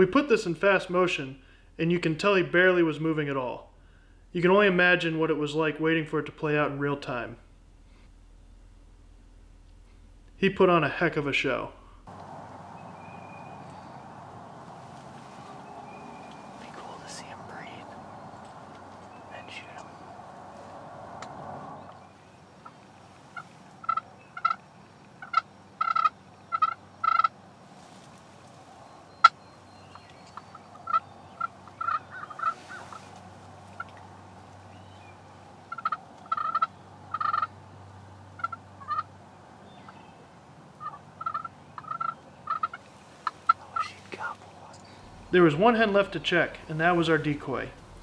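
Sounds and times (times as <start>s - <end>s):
wild turkeys calling: 12.1s - 27.4s, 28.8s - 48.0s.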